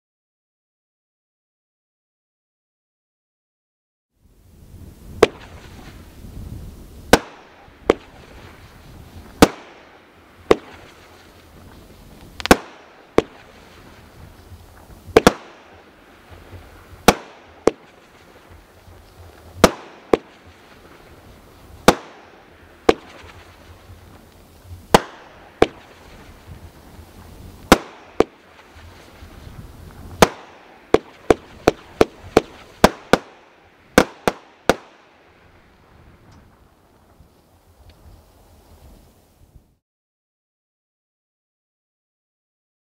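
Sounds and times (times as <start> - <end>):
firework bangs: 5.0 - 38.9.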